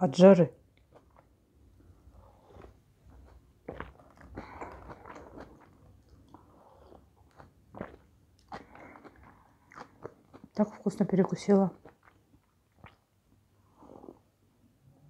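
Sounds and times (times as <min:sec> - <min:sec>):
sipping and swallowing: 0:02.2 - 0:13.1.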